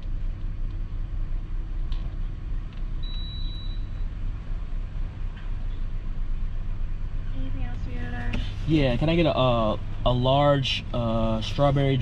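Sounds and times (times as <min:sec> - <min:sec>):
car engine idling hum: 0:00.0 - 0:12.0
faint high beep: 0:03.0 - 0:04.1.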